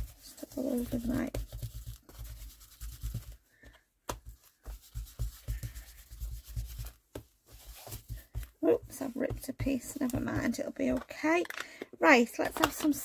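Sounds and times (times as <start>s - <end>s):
brush rubbing over paper: 0.0s - 3.4s, 4.4s - 10.4s.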